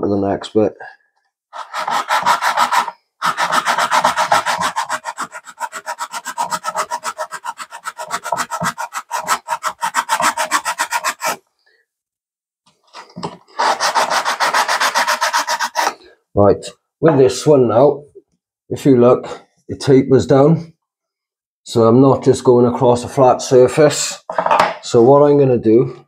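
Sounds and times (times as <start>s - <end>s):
cutting tool scraping back and forth: 1.6s - 11.4s, 12.9s - 16.0s.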